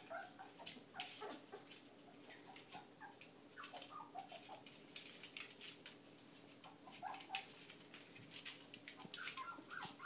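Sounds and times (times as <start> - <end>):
puppies squeaking and whimpering: 0.0 - 4.7, 6.7 - 7.5, 9.0 - 10.0
paws clicking on floor: 0.1 - 10.0.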